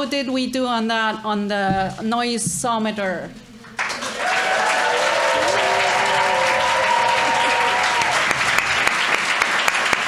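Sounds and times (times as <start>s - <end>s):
audience clapping: 3.6s - 10.0s
voices cheering: 4.0s - 9.1s.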